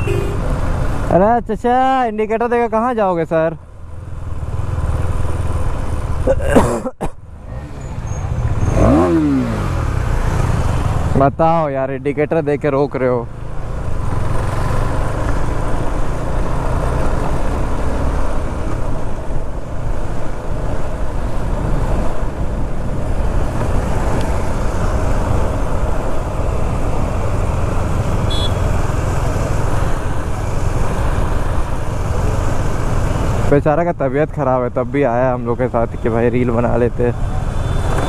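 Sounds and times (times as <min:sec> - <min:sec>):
traffic noise: 0:00.0 - 0:38.0
wind rumble: 0:13.9 - 0:33.4.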